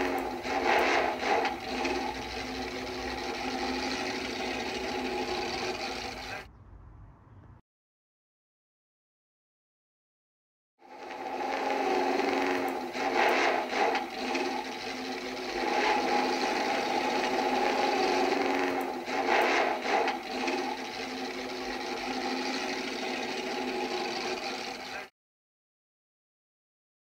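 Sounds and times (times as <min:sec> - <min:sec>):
engine running: 0:00.0 - 0:06.6, 0:10.8 - 0:25.1.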